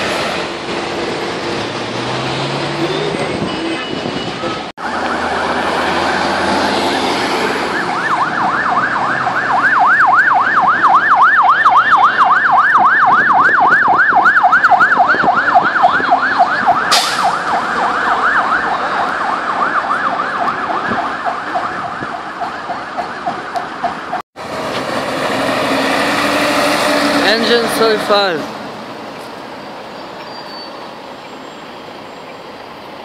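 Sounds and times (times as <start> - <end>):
fire engine siren yelping: 4.6 - 28.5.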